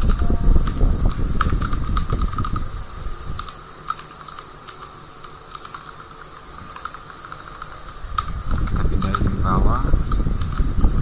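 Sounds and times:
low rumble: 0.0s - 3.5s
faint hum: 0.0s - 11.0s.

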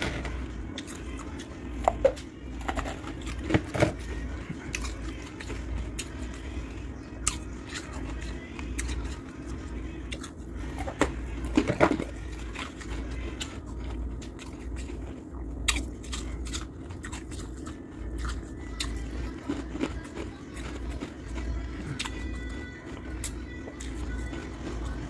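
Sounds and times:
ice crunching being chewed: 0.0s - 25.0s
steady low hum: 0.0s - 25.0s.

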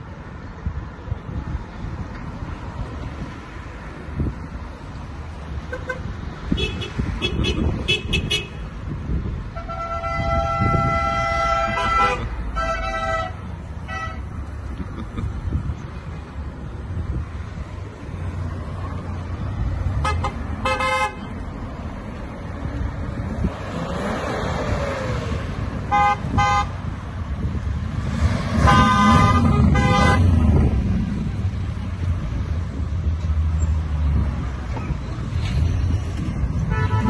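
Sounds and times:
cars driving past: 0.0s - 37.0s
car horns honking: 5.7s - 8.7s, 9.5s - 14.4s, 20.0s - 21.3s, 25.9s - 26.9s, 28.6s - 30.6s, 36.6s - 37.0s.

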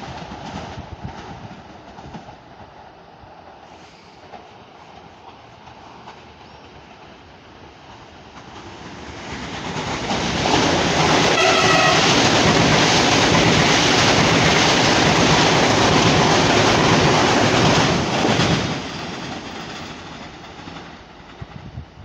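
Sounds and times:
electric train passing at speed: 0.0s - 22.0s
train horn blast: 11.3s - 12.4s.

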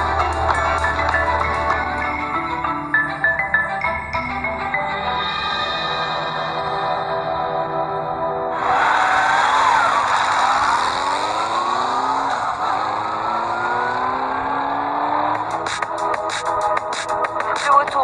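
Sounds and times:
music with a regular beat: 0.0s - 4.5s, 15.3s - 18.0s
motor scooter pulling away: 8.9s - 15.8s.

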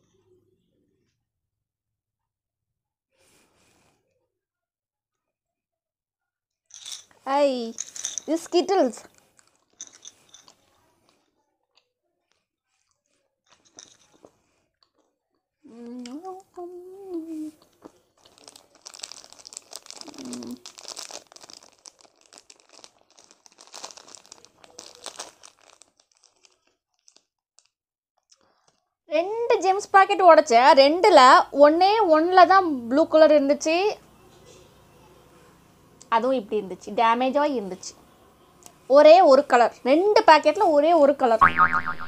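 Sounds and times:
plastic wrapper crinkling: 9.0s - 11.2s, 17.6s - 28.8s
short hum: 41.4s - 42.0s.

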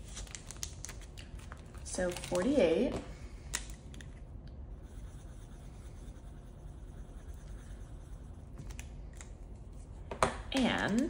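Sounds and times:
pen scratching on paper: 4.8s - 8.4s.

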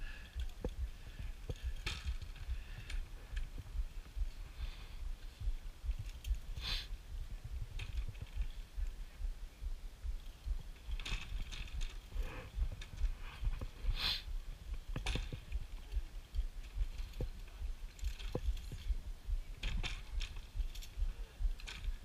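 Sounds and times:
wind buffeting microphone: 0.0s - 22.0s
carabiners clinking and rattling: 1.5s - 3.1s, 10.4s - 12.1s, 16.6s - 18.9s, 19.6s - 21.9s
rustling: 10.1s - 22.0s.

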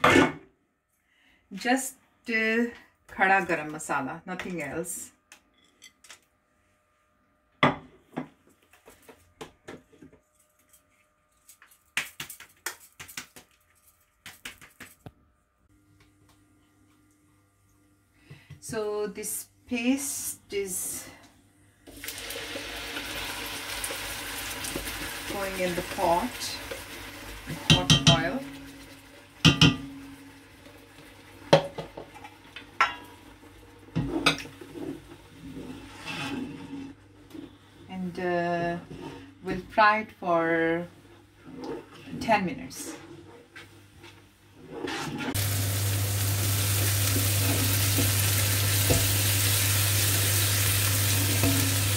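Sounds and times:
wooden spoon stirring in pan: 23.0s - 45.5s, 46.4s - 51.9s
dishes clattering: 29.4s - 30.1s.

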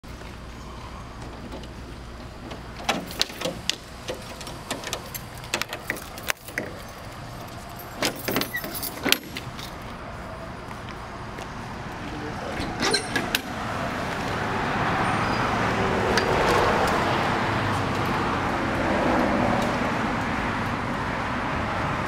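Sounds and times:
metal lock clicks and clanks: 1.3s - 6.9s, 7.8s - 9.7s, 12.6s - 13.6s
keys jangling: 2.8s - 9.8s.

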